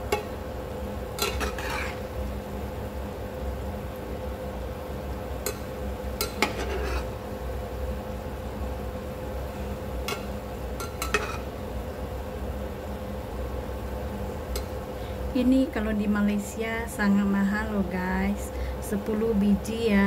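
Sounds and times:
deep-frying sizzle in oil: 0.0s - 17.6s
metal ladle scraping pan: 1.2s - 2.1s, 6.2s - 7.2s, 10.1s - 11.5s.

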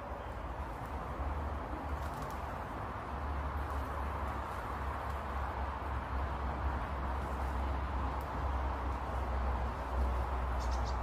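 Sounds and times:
low outdoor rumble: 0.0s - 11.0s
faint bird chirps: 10.6s - 11.0s.

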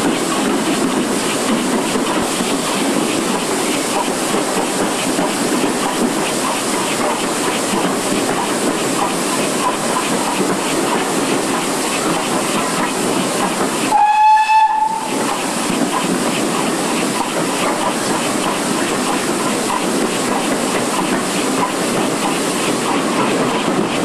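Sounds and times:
steam train running in tunnel: 0.0s - 24.0s
steam whistle blast: 13.9s - 15.2s.

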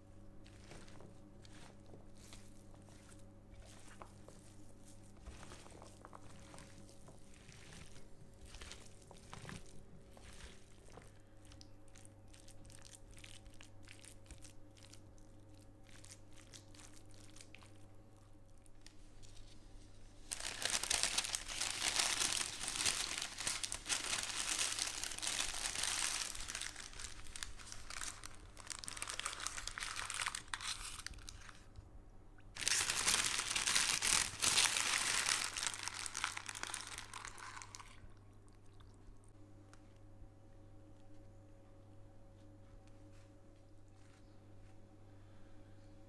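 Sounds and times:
soft paper rustling: 0.1s - 11.6s, 18.6s - 31.8s
parchment paper crinkling: 0.4s - 15.0s, 18.6s - 31.8s, 32.6s - 38.0s.

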